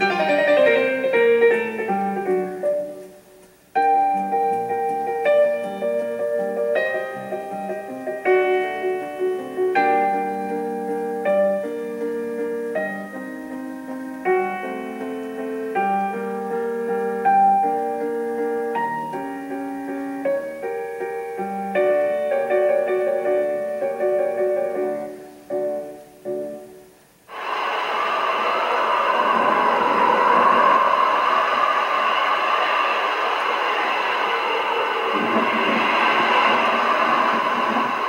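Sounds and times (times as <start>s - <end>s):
sudden loud rush of noise: 0.0s - 2.6s, 26.9s - 38.0s
piano music: 0.0s - 38.0s.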